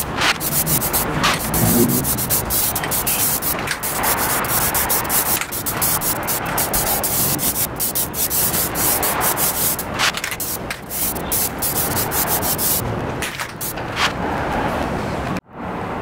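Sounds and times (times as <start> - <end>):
aerosol can spraying: 0.0 - 12.8.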